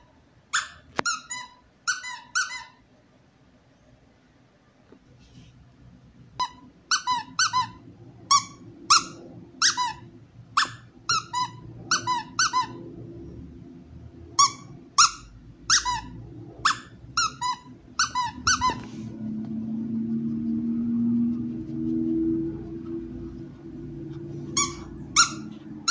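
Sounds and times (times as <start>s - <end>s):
squeaky dog toy squeaks: 0.5s - 2.8s, 6.4s - 12.8s, 14.4s - 18.9s, 24.5s - 25.9s.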